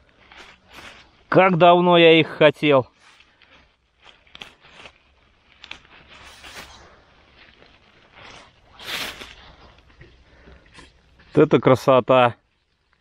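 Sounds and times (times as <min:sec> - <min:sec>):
rustling in leaf litter: 0:00.0 - 0:09.9.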